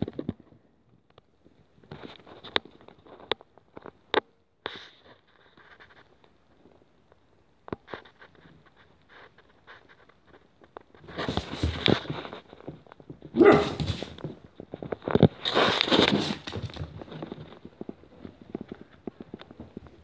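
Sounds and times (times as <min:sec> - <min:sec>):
claws clicking on wooden floor: 0:09.8 - 0:20.0
puppy barking: 0:13.4 - 0:14.1.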